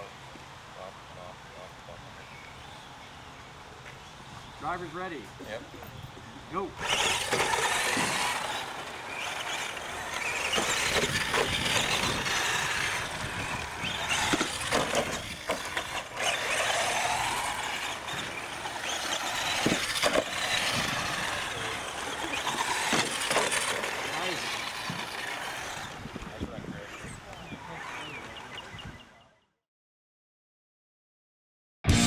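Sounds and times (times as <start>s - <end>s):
model truck motors whining: 6.2s - 29.1s
tyres scrabbling on dirt: 6.8s - 27.1s.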